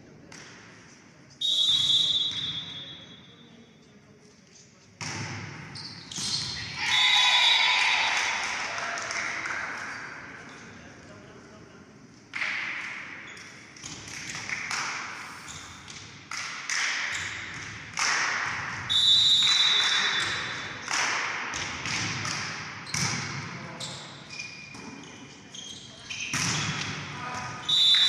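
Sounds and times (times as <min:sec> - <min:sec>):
referee's whistle: 0:01.4 - 0:03.5, 0:18.9 - 0:20.6, 0:27.6 - 0:28.0
volleyball hits: 0:05.0 - 0:07.1, 0:15.9 - 0:23.8, 0:26.3 - 0:28.0.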